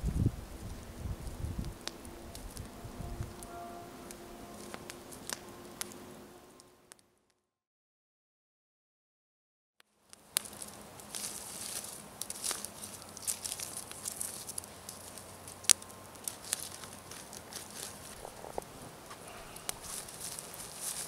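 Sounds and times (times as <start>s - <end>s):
fire popping and snapping: 0.0s - 3.5s, 4.1s - 6.1s, 10.0s - 21.0s
campfire embers crackling: 0.0s - 7.0s, 9.8s - 21.0s
stick stirring coals: 0.1s - 7.0s, 10.1s - 21.0s.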